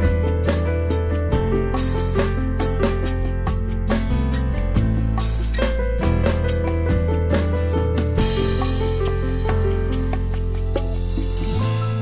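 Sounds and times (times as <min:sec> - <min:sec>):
background music with drum beat: 0:00.0 - 0:12.0.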